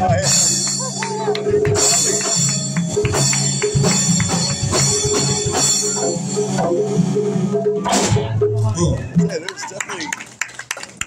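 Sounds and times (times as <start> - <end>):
congas hand-drummed: 0.0 - 6.2
electric guitar: 0.0 - 9.3
bass guitar: 0.0 - 9.6
drum kit: 0.0 - 9.6.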